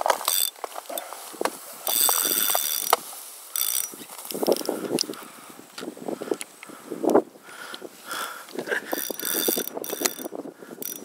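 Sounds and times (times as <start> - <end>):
reel clicks: 0.0 - 1.2, 1.8 - 7.8, 8.5 - 11.0
fishing reel drag buzzing: 0.2 - 1.1, 1.8 - 5.4, 8.1 - 11.0.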